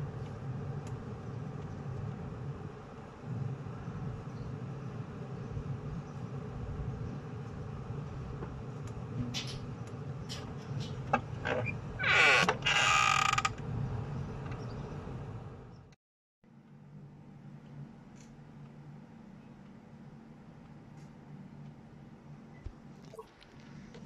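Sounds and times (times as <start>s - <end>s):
low background hum: 0.0s - 24.0s
hinges creaking: 10.3s - 13.7s.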